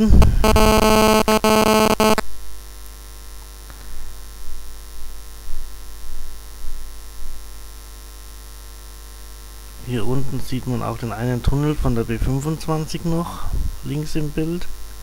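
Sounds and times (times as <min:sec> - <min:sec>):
buzzy electronic tone: 0:00.0 - 0:02.3
electrical mains hum: 0:00.0 - 0:15.0.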